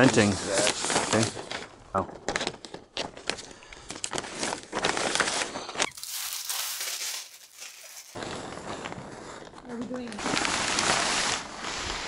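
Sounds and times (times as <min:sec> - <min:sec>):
plastic sheeting crinkling: 0:00.0 - 0:01.7, 0:04.0 - 0:12.0.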